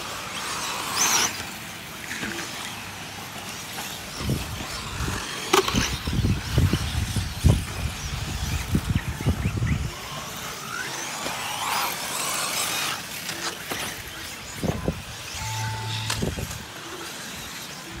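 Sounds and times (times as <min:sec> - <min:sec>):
rc car motor whine: 0:00.0 - 0:18.0
short steady tone: 0:15.4 - 0:16.6.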